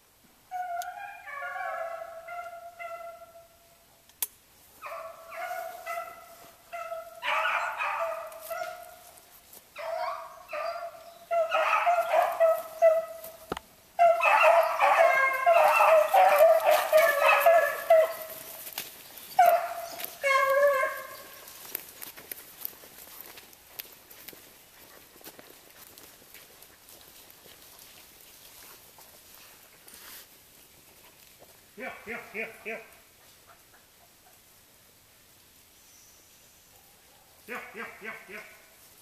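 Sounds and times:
hounds baying: 0.5s - 3.5s, 4.8s - 27.9s, 36.8s - 38.8s.

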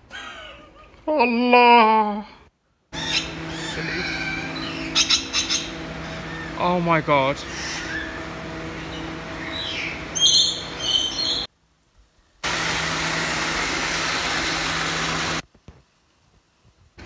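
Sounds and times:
steady low hum: 2.8s - 11.5s, 12.4s - 15.4s
high chirping calls: 3.0s - 11.5s
small waterfall splashing: 12.4s - 15.4s.

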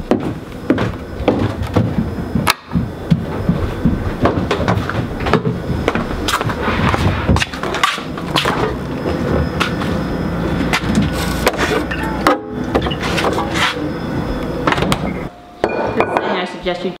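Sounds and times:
footsteps on wooden stairs: 0.0s - 11.7s.

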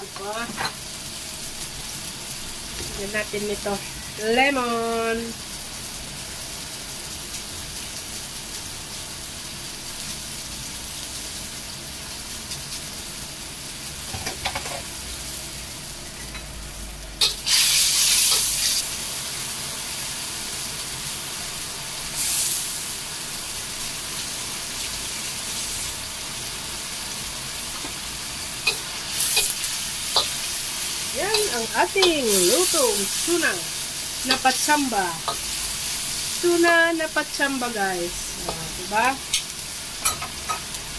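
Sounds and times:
fish sizzling in oil: 0.0s - 40.9s
spatula scraping a wok: 17.2s - 18.9s, 28.6s - 36.4s.

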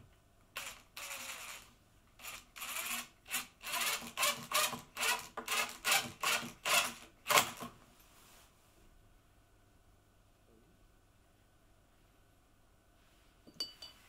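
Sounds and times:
cordless driver driving screw: 0.6s - 1.6s, 2.2s - 7.7s.

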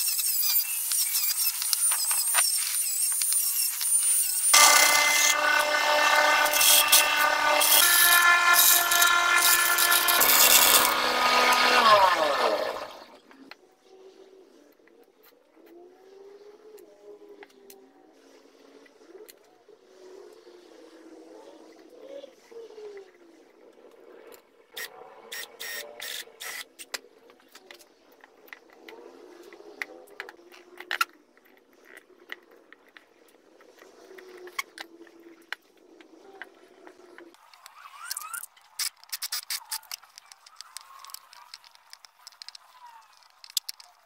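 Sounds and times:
chisel cutting wood: 0.0s - 13.2s.

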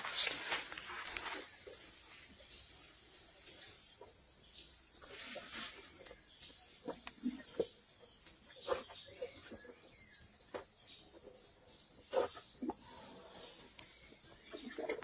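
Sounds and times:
twigs snapping and leaves rustling: 0.0s - 1.5s
crickets chirping: 0.0s - 15.0s.

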